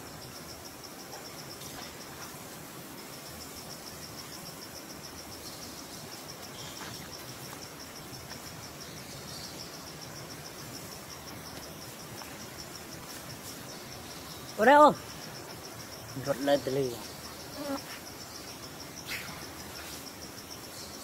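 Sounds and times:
insect chirping: 0.0s - 21.0s
steady outdoor hiss: 0.0s - 21.0s.

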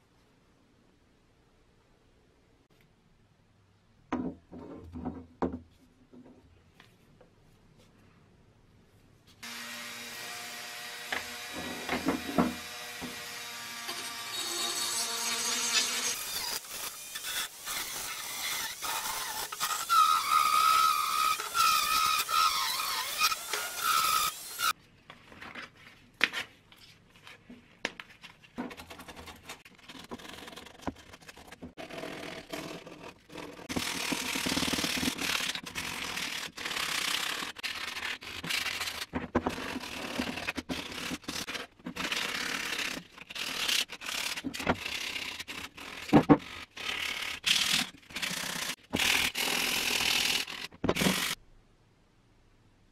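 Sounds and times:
rotary tool grinding metal: 10.0s - 24.7s.

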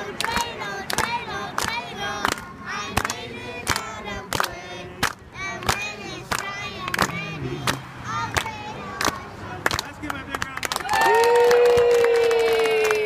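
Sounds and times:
children and adults singing: 0.0s - 9.8s
rhythmic hand claps: 0.0s - 13.0s.

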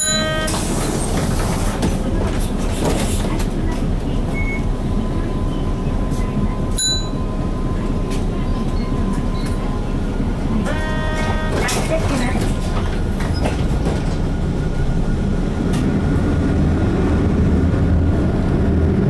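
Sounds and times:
bus engine rumble: 0.0s - 19.0s.

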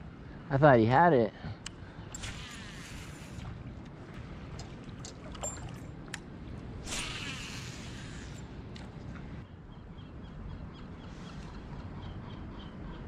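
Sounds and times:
fishing reel clicks: 6.9s - 8.4s
reel spool whirring: 6.9s - 8.4s.

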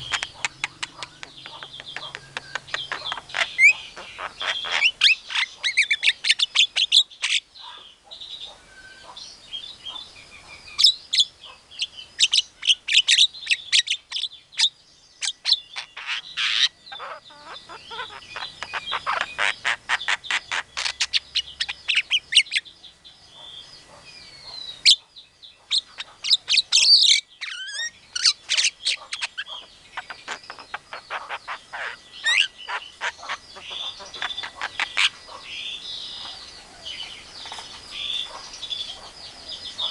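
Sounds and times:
bird chattering and whistling: 0.0s - 7.8s, 10.7s - 22.7s, 24.4s - 39.9s.

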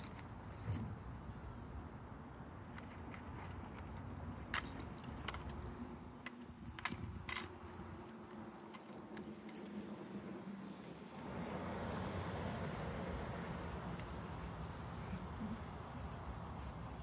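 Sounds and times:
backpack buckles clicking: 2.7s - 9.9s.

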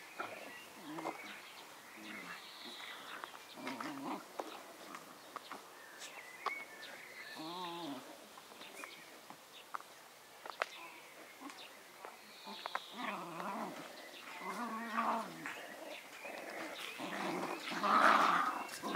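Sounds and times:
puppies play-growling: 2.0s - 5.6s, 12.5s - 18.9s.

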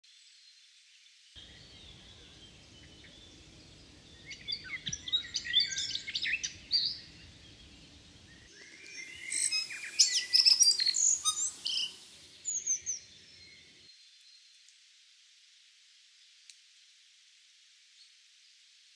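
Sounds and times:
bird singing with clicks: 8.6s - 12.0s.

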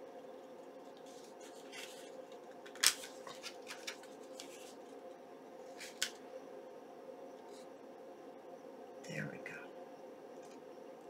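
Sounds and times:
paper rustling: 0.9s - 5.0s, 5.7s - 6.2s.

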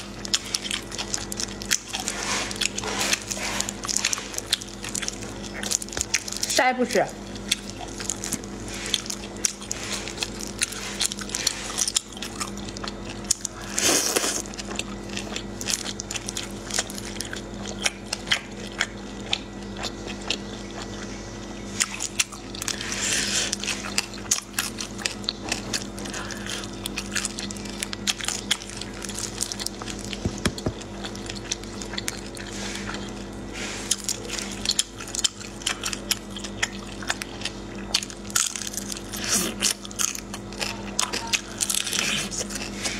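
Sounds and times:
steady low hum: 0.0s - 42.9s
wet chewing and lip smacks: 0.1s - 6.5s, 7.2s - 42.9s
wet slurping: 1.7s - 5.8s.

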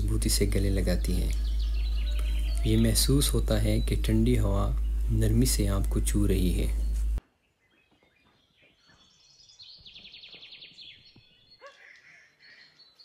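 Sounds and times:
bird trilling: 0.6s - 7.2s, 8.2s - 13.0s
short bird calls: 1.2s - 3.2s, 9.8s - 13.0s.

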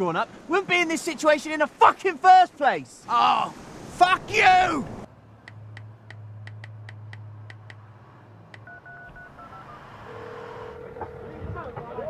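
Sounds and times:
short phone beeps: 8.6s - 11.5s
phone ringing tone: 8.6s - 12.0s.

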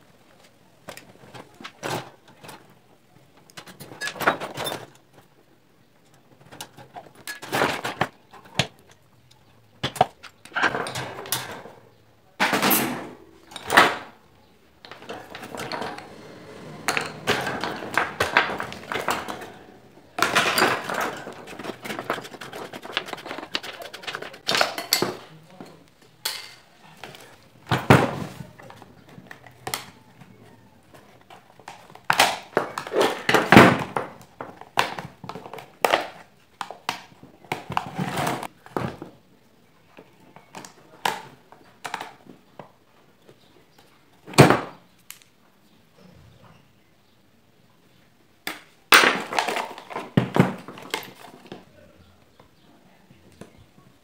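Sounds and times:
metal fan parts clattering: 14.9s - 25.2s.

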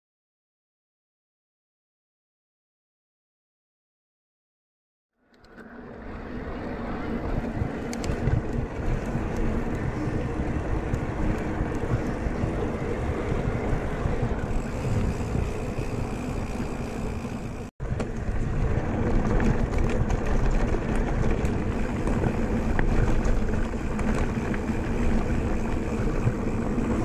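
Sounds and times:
electric bike riding rumble: 5.2s - 27.0s
wind buffeting microphone: 5.9s - 27.0s.

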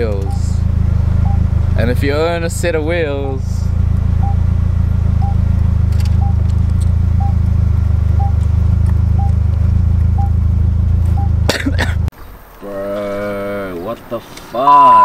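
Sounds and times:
faint warning beep: 0.0s - 1.5s, 4.2s - 4.6s, 5.2s - 5.4s, 6.2s - 6.4s, 7.2s - 7.4s, 8.2s - 8.4s, 9.2s - 9.4s, 10.2s - 10.4s, 11.1s - 11.4s, 14.6s - 15.0s
car engine idling: 0.0s - 12.6s.

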